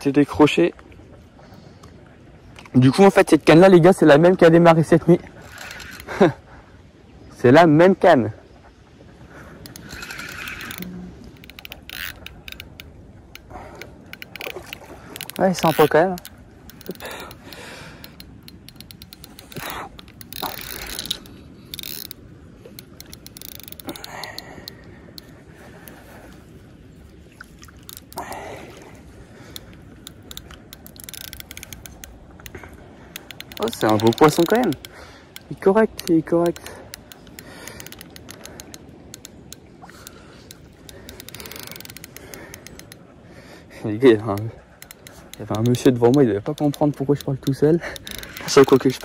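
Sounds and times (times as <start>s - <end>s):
fishing reel clicking: 5.4s - 6.2s, 9.6s - 25.4s, 27.8s - 28.4s, 29.5s - 43.0s, 44.2s - 49.0s.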